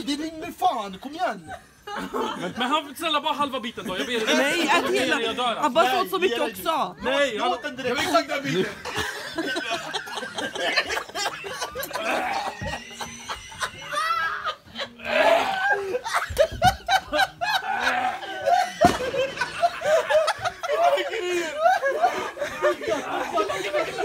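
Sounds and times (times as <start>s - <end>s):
men laughing hard: 1.3s - 2.8s, 7.4s - 24.0s
men shouting: 17.4s - 21.8s, 22.6s - 24.0s.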